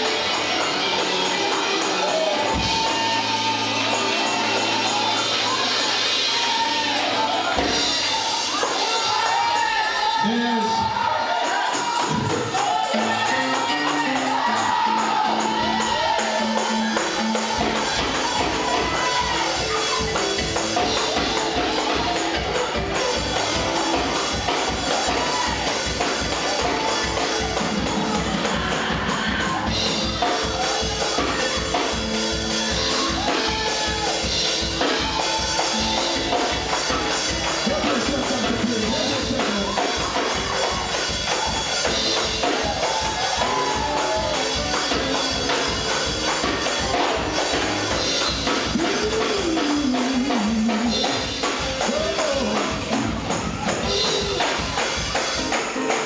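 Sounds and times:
bass beat: 0.0s - 10.4s, 11.0s - 55.9s
fast driving gospel music: 0.0s - 56.0s
people singing: 11.0s - 32.0s.

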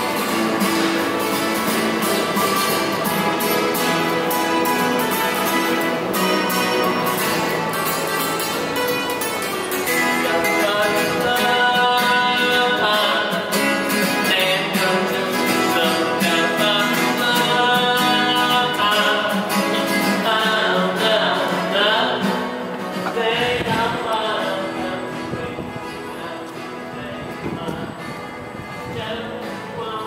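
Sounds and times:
guitar strummed and plucked: 0.0s - 30.0s
person singing: 9.8s - 30.0s.

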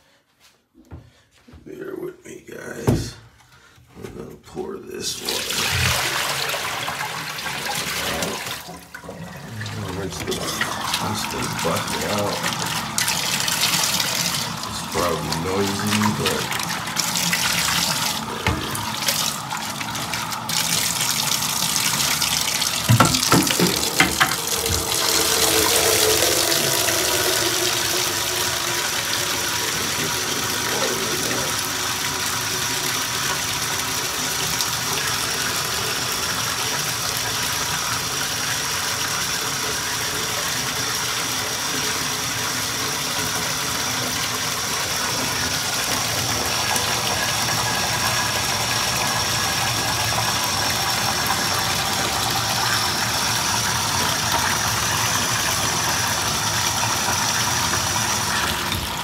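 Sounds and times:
faucet running into bucket: 5.2s - 59.0s
knocks: 22.8s - 24.9s.

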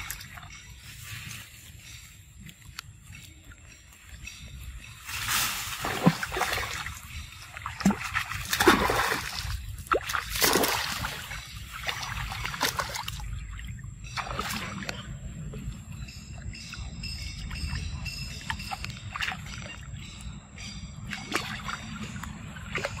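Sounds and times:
monkeys splashing in water: 7.6s - 13.6s.

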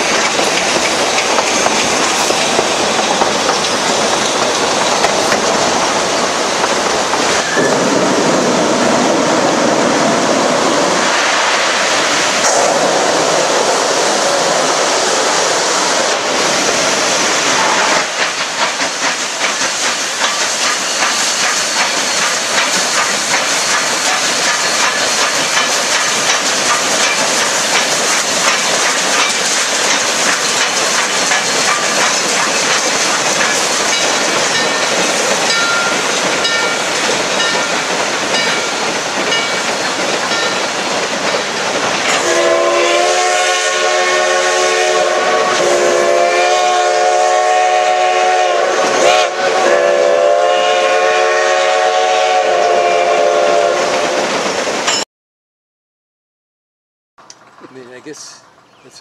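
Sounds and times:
train clattering over bridge: 0.0s - 55.0s
steam whistle blasts: 42.2s - 54.1s.

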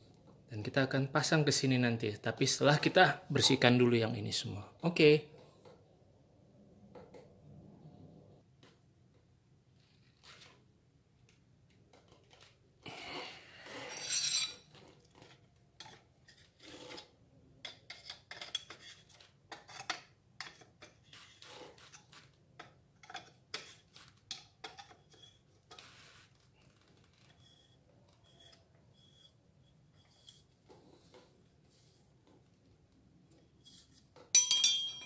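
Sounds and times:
light metal clinks and knocks: 34.2s - 35.0s.

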